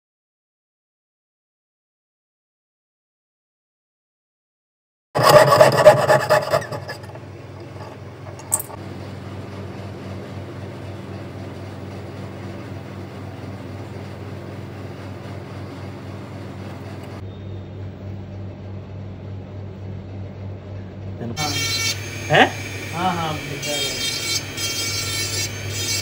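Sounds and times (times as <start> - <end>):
saw rasping through metal sheet: 5.2 - 8.7, 21.4 - 26.0
steady low hum: 5.2 - 26.0.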